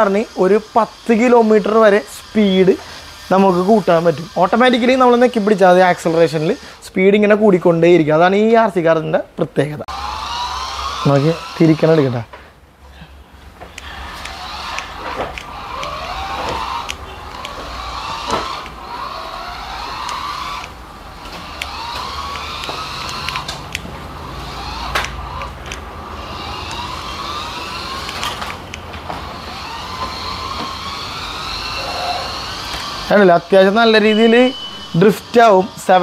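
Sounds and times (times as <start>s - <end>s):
toy car electric motor whining: 0.0s - 7.8s, 9.9s - 12.4s, 13.5s - 36.0s
sharp clicks: 13.6s - 33.2s.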